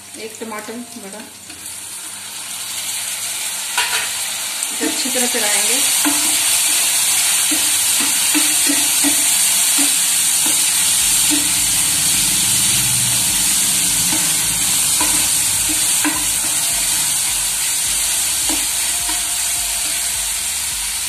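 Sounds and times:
vegetables sizzling in oil: 0.0s - 21.0s
spatula scraping a pan: 5.9s - 20.6s
spatula knocking against pan: 6.0s - 6.6s, 7.2s - 10.7s, 15.0s - 20.1s.

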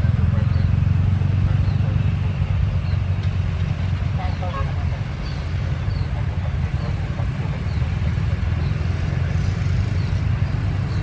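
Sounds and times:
motorcycles passing: 0.0s - 11.0s.

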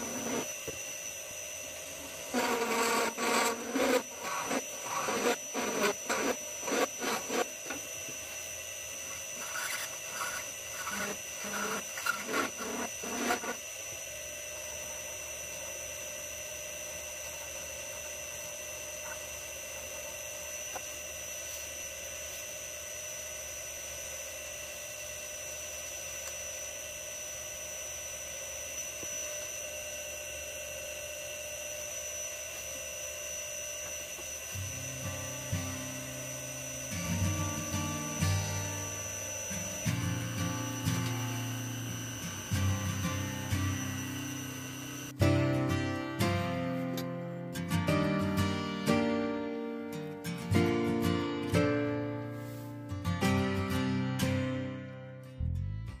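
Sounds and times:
file strokes on brass: 0.0s - 0.5s, 2.3s - 7.5s, 9.4s - 13.6s
lathe whine: 0.0s - 47.3s.

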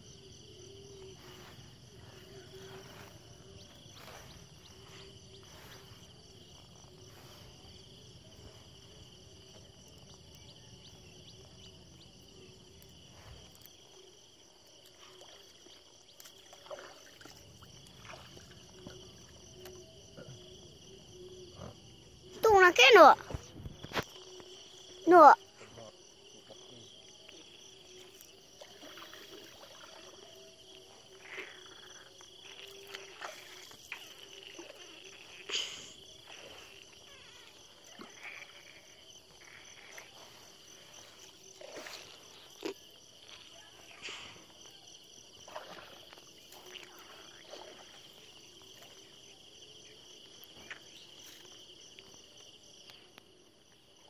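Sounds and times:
insect chirring: 0.0s - 54.0s
water dripping and splashing: 14.8s - 19.8s, 32.4s - 35.5s.

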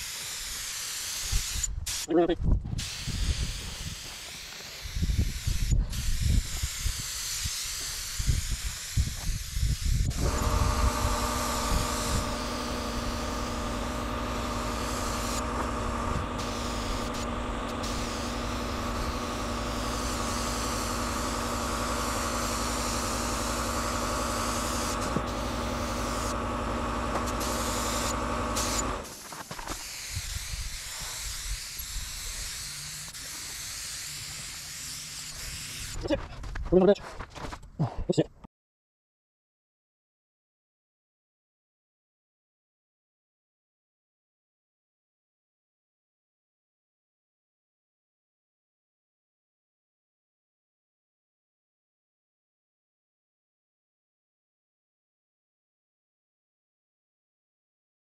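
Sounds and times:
paint spray gun hissing: 0.0s - 2.2s, 2.8s - 36.1s
steady motor hum: 9.8s - 29.2s.

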